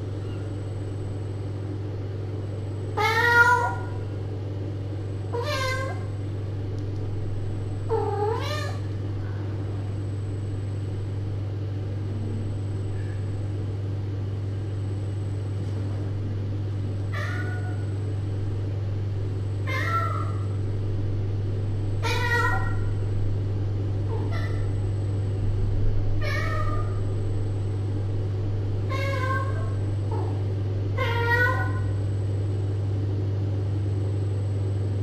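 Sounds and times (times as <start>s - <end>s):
steady low hum: 0.0s - 35.0s
cat meowing: 5.4s - 6.0s, 8.0s - 8.8s, 31.0s - 31.9s.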